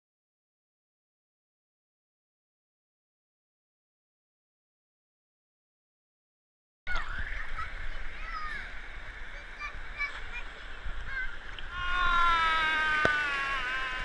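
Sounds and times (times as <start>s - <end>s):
pool water washing: 6.9s - 14.0s
child yelling: 9.6s - 10.5s, 11.1s - 14.0s
distant shrieks: 11.7s - 14.0s.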